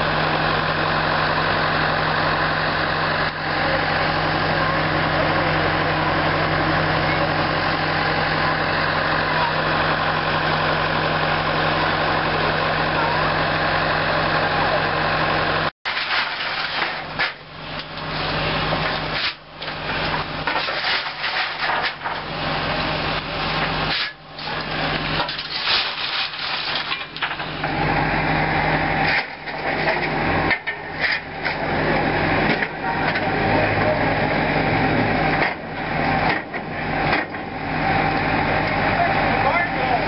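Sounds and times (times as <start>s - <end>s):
low mechanical hum: 0.0s - 40.0s
shovel scraping coal on steel: 15.9s - 17.4s, 18.9s - 22.3s, 23.8s - 27.6s.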